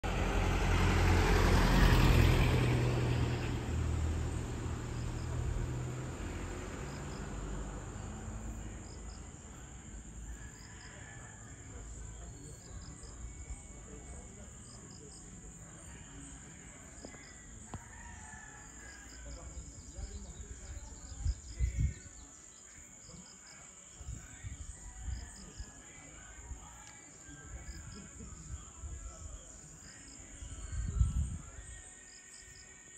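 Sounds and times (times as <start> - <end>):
crickets and insects droning: 0.1 - 32.9
insect chirps: 18.8 - 32.9.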